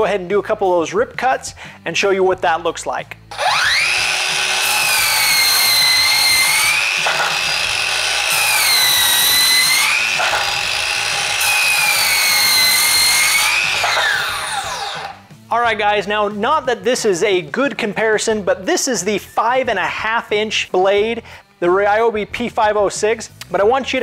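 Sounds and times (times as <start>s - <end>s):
circular saw whine: 3.3s - 15.2s
saw cutting through wood: 3.3s - 15.3s.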